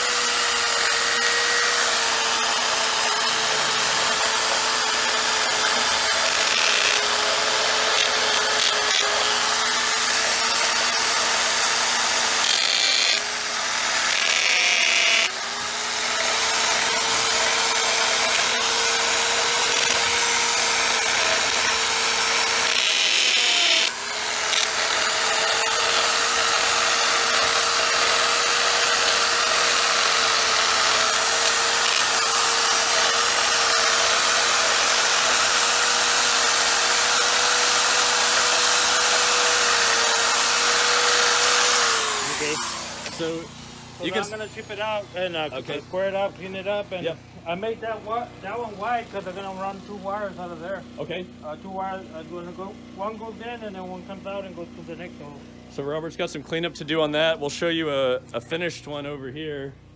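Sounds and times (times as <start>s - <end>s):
angle grinder cutting block: 0.0s - 46.6s.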